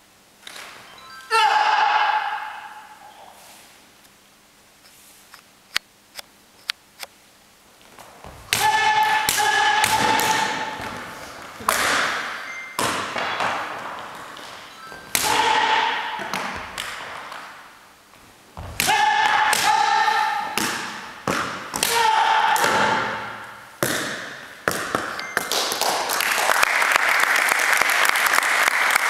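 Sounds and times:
group applauding: 25.4 - 29.0.

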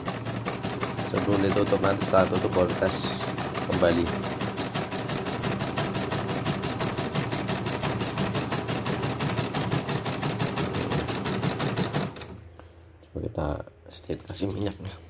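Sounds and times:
embroidery machine clattering: 0.0 - 8.6.

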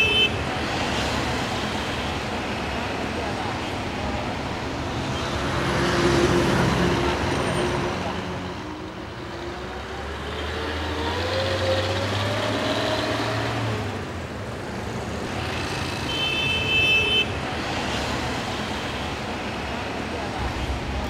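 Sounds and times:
vehicle horn: 16.1 - 17.3.

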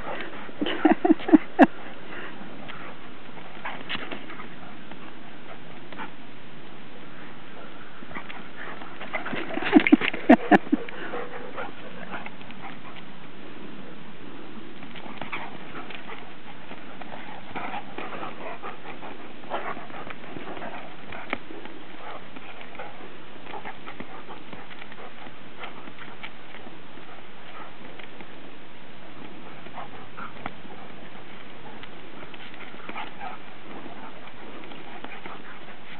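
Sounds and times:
dogs scuffling: 0.0 - 6.2, 7.8 - 13.4, 14.7 - 35.9
paws clicking: 14.8 - 28.4, 29.2 - 35.9.

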